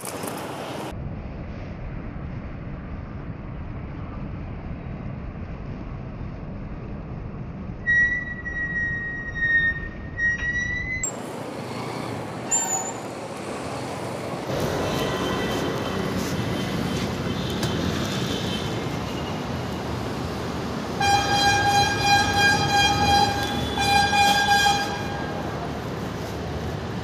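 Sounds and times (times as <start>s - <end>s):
street traffic: 0.0s - 27.0s
vehicle horn blast: 21.0s - 25.4s.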